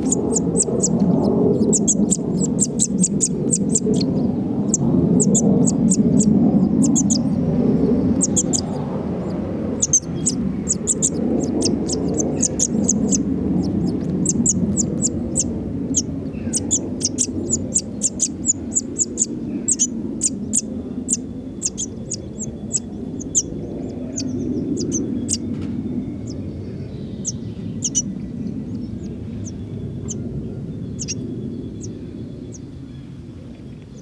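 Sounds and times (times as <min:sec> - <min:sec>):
nestlings cheeping: 0:00.0 - 0:07.3, 0:08.2 - 0:25.4
low rumble: 0:00.0 - 0:34.0.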